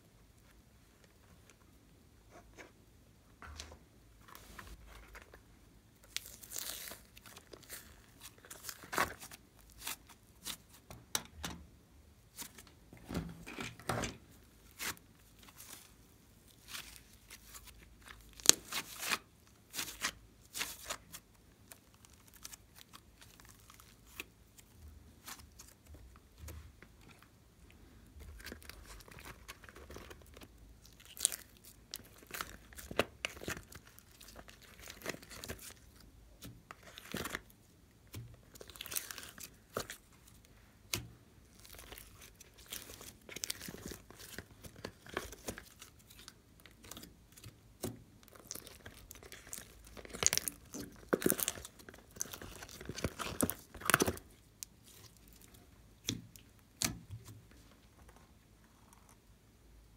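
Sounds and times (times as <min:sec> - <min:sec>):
slime crackling and squelching: 0:06.0 - 0:10.9, 0:14.6 - 0:26.4, 0:28.2 - 0:57.3.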